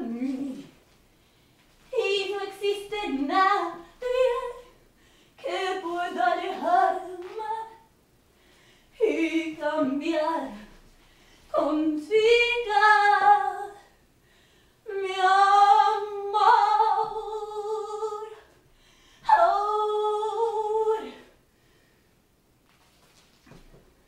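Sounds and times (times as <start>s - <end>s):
woman singing unaccompanied: 0.0s - 0.8s, 1.9s - 4.8s, 5.4s - 7.9s, 9.0s - 10.7s, 11.5s - 13.9s, 14.9s - 18.5s, 19.2s - 21.3s.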